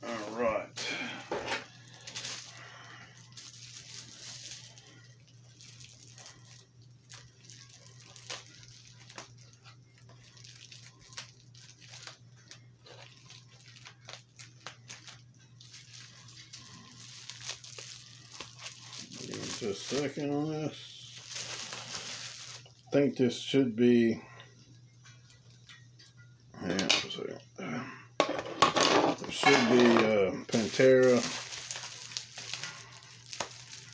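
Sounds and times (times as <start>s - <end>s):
steady low hum: 0.0s - 28.5s
package rustling and clicking: 29.3s - 33.9s.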